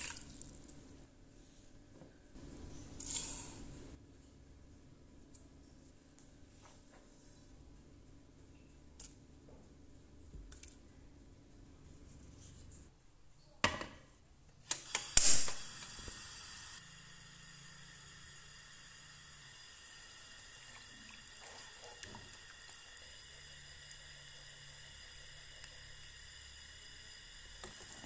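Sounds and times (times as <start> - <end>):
gas burner whoosh and hiss: 14.7 - 20.6.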